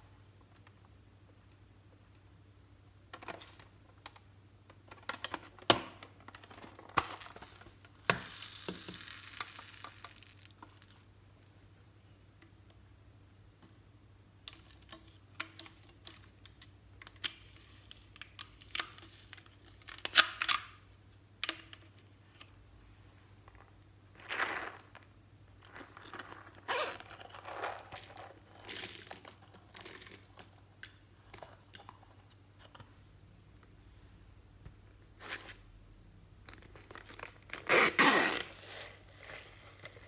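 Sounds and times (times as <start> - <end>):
rustling scrapes: 37.6 - 40.0.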